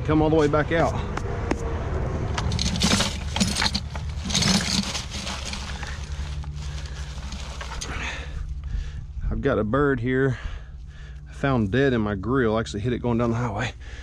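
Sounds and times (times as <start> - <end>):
steady low rumble: 0.0 - 14.0
metal traps and chain rattling: 2.4 - 8.3.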